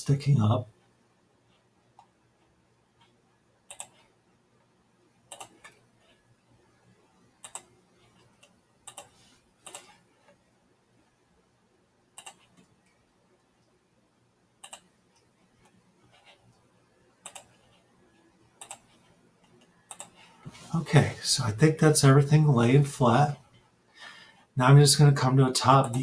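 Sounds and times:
computer mouse clicks: 3.0s - 4.1s, 5.3s - 6.2s, 7.4s - 10.4s, 12.2s - 13.0s, 14.6s - 16.4s, 17.2s - 17.8s, 18.6s - 20.2s.

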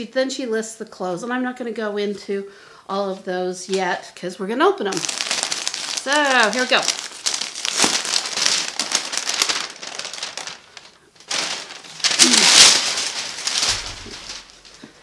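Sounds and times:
tissue paper crinkling: 4.9s - 15.0s.

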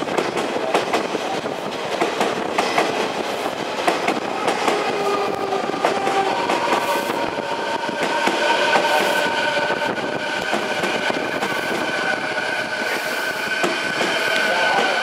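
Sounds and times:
electric train running rumble: 0.0s - 15.0s
high whining tones: 4.3s - 15.0s.

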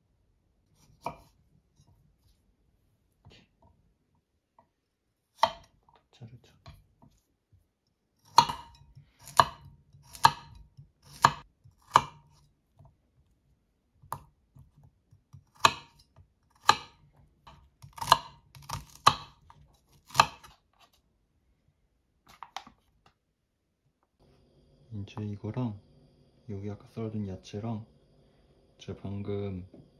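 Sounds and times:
knife chopping on wooden board: 0.8s - 1.4s, 5.4s - 5.8s, 8.2s - 13.0s, 14.0s - 20.8s.

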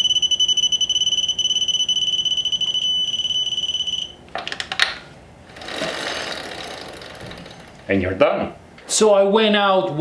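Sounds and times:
high-pitched buzzer tone: 0.0s - 4.2s
rattle of clicks: 5.6s - 7.9s.

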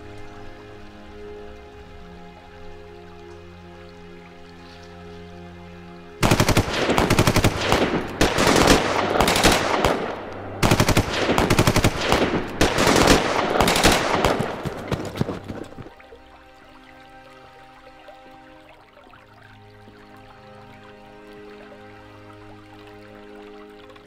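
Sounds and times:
machine-gun bursts: 6.2s - 15.7s.

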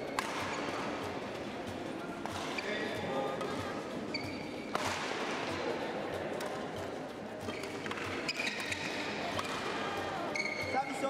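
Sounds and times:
racket hitting shuttlecock: 0.0s - 1.3s, 2.2s - 2.7s, 3.3s - 5.6s, 6.2s - 10.7s
murmur of people: 0.0s - 11.0s
shoes squeaking on court floor: 2.3s - 4.9s, 6.4s - 11.0s.

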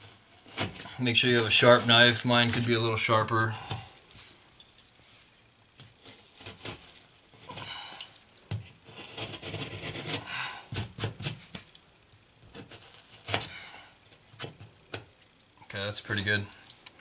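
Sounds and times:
utility knife scraping drywall: 8.8s - 11.5s.

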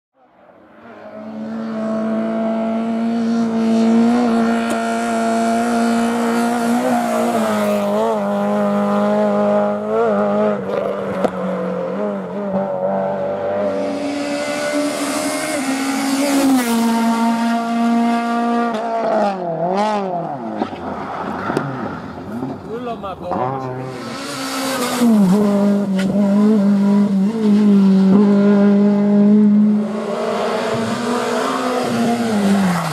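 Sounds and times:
rally car engine at high revs: 0.8s - 32.9s.

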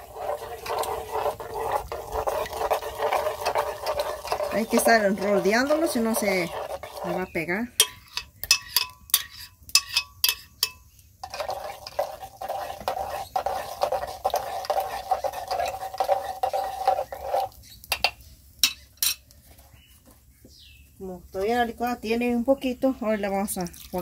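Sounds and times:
stirring in clay pot: 0.0s - 20.2s, 21.2s - 24.0s
metal spoon knocking in glass jar: 7.8s - 11.5s.

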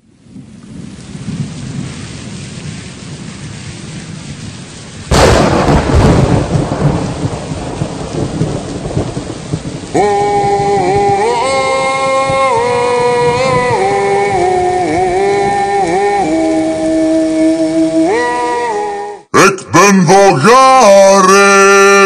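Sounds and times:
steady rain hiss: 0.0s - 22.0s
loud thunderclap rumbling: 0.3s - 15.7s
music with long held notes: 10.0s - 19.2s.

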